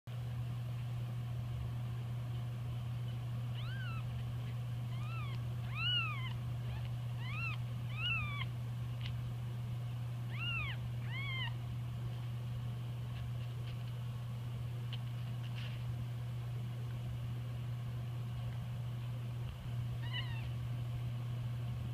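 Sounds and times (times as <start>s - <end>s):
kittens mewing: 3.1s - 8.6s, 10.2s - 11.6s, 19.9s - 20.6s.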